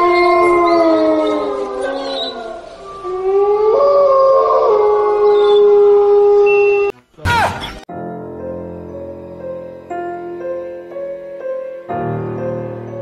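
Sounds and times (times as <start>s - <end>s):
long howls: 0.0s - 6.9s.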